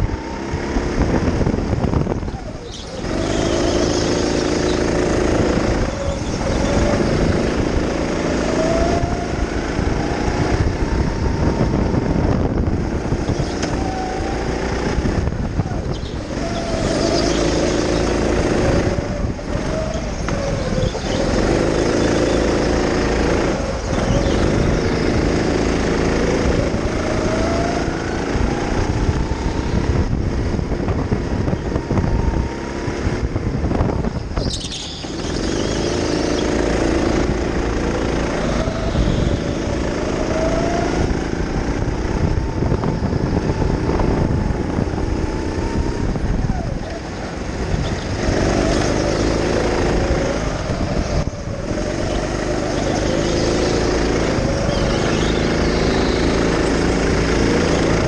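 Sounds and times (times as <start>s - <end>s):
go-kart motor revving: 0.0s - 58.0s
kart rumble and rattle: 0.0s - 58.0s.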